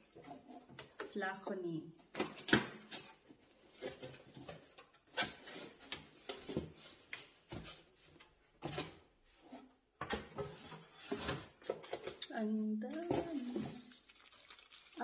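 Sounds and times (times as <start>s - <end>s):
cardboard packaging rustling and scraping: 3.0s - 12.1s, 13.0s - 15.0s.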